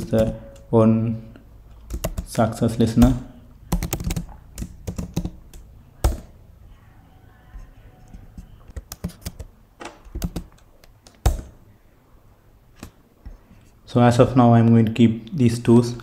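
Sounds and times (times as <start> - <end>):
computer keyboard typing: 1.7 - 6.4, 7.6 - 11.6.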